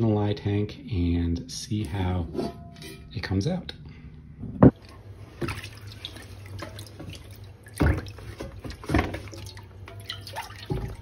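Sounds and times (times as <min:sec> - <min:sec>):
liquid sloshing and dripping in a tub: 0:04.7 - 0:11.0.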